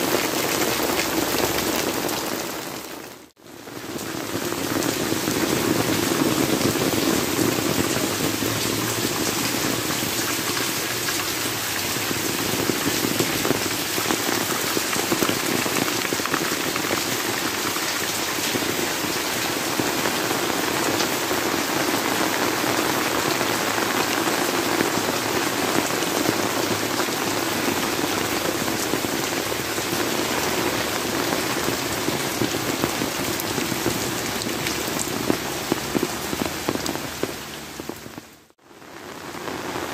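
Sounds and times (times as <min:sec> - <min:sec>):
heavy rain on leaves: 0:00.0 - 0:39.9.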